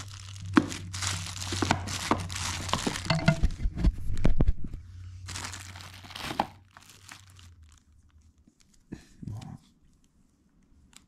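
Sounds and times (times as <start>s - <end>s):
plastic bag crinkling: 0.0s - 3.6s, 5.2s - 8.8s.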